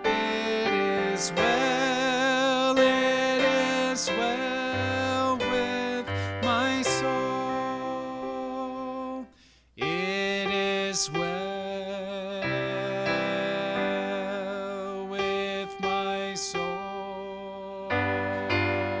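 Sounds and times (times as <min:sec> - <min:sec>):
man singing a hymn: 0:00.0 - 0:19.0
instrumental accompaniment: 0:15.2 - 0:19.0.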